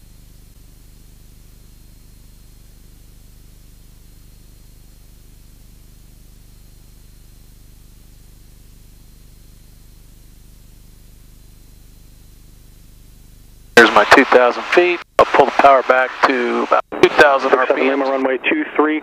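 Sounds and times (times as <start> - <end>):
faint propeller plane drone: 0.0 - 19.0
even hiss: 13.8 - 18.3.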